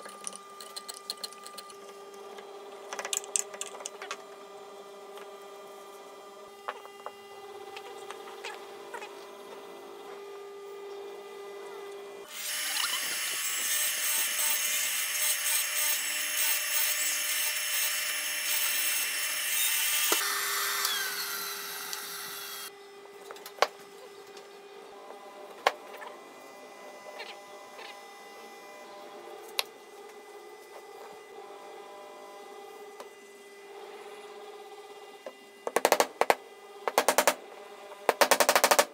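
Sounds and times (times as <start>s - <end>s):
motor winding down: 12.3s - 17.0s, 18.4s - 22.7s
mortising machine cutting wood: 12.3s - 22.7s.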